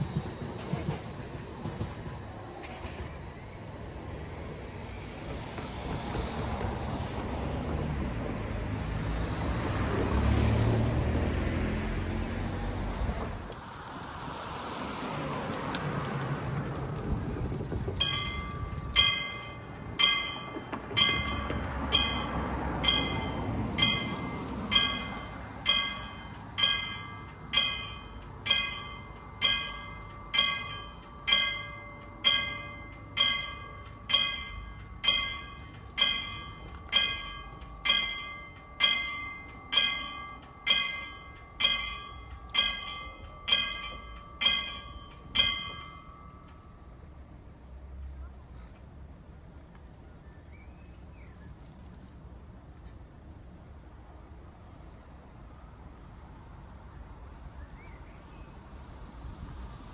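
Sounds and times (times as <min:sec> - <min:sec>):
level crossing warning bell: 0:18.0 - 0:47.2.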